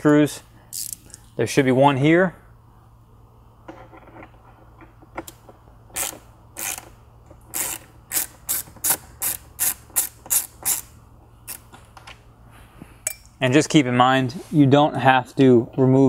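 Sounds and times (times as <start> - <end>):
hand ratchet clicking: 0.7 - 1.2, 5.9 - 11.7.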